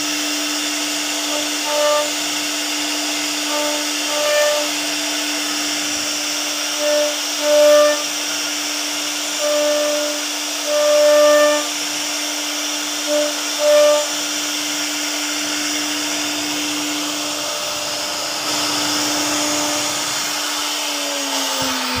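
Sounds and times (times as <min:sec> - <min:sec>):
router spindle cutting wood: 0:00.0 - 0:22.0.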